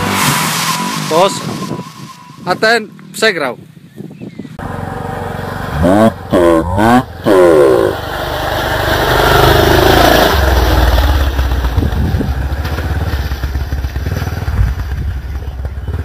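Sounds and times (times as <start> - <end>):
dirt bike engine revving: 4.6 - 16.0.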